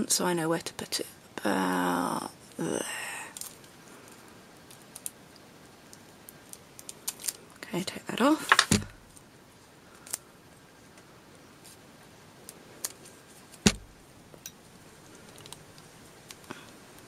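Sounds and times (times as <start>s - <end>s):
small clicks and knocks: 13.6s - 16.8s.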